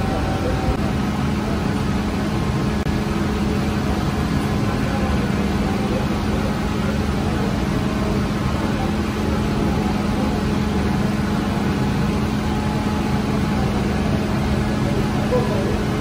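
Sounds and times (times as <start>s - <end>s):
oven mechanical hum and rumble: 0.0s - 16.0s
steady low drone: 0.0s - 16.0s.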